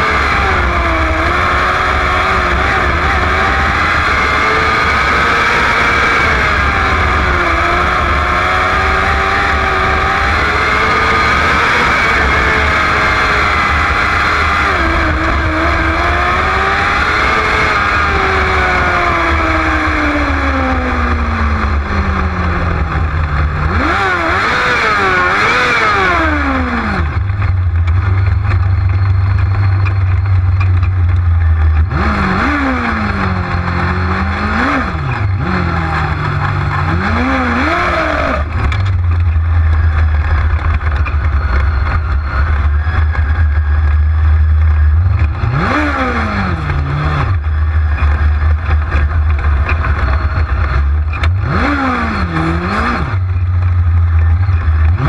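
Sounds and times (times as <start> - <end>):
engine throttle blips: 0.0 - 55.0
race car engine: 0.0 - 55.0.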